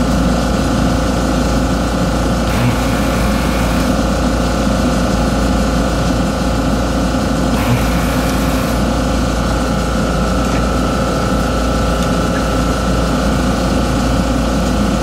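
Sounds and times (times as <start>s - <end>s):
small electric motor whining: 2.4s - 4.2s, 7.5s - 9.6s.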